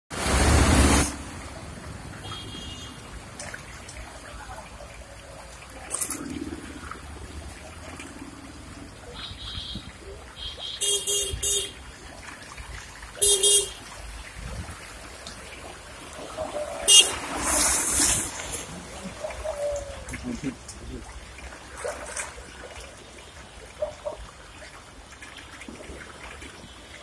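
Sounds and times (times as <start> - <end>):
loud rush of noise: 0.1 - 1.8
street traffic: 0.1 - 22.4
wash of flood water: 0.1 - 27.0
horn honking: 2.2 - 3.1, 9.1 - 11.8, 13.2 - 13.8, 16.9 - 17.2.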